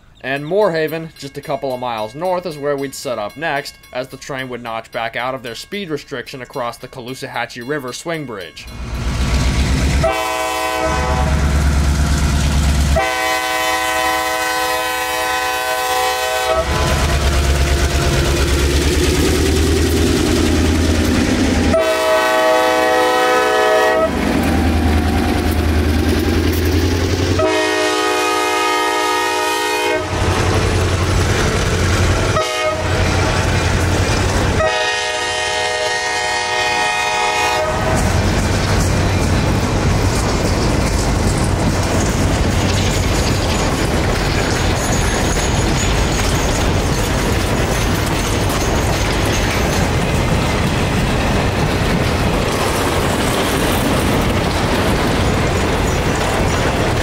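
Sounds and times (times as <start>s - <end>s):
locomotive horn blasts: 10.0s - 11.6s, 12.9s - 17.8s, 21.6s - 25.5s, 27.3s - 30.9s, 32.3s - 33.1s, 34.5s - 38.1s.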